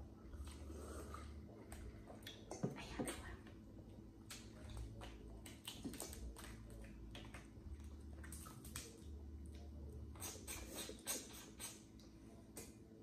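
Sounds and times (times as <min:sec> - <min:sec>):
wet mouth sounds of eating: 0:04.2 - 0:12.7.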